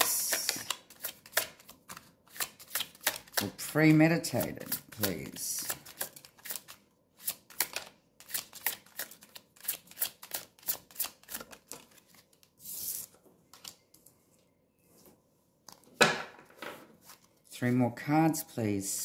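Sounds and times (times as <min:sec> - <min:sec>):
cards clicking while shuffled: 0:00.0 - 0:12.5.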